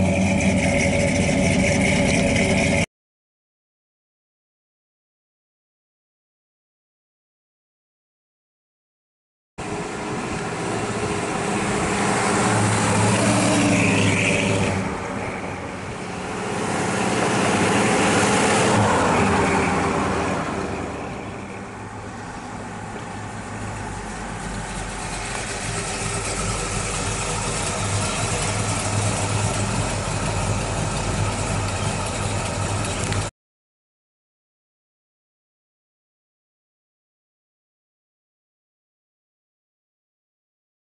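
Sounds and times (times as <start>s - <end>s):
pickup engine revving and idling: 0.0s - 2.8s, 9.6s - 33.3s.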